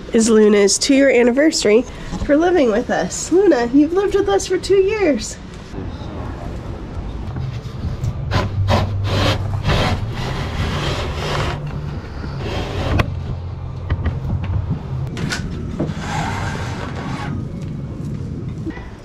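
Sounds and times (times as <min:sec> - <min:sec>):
steady low rumble: 0:05.4 - 0:19.0.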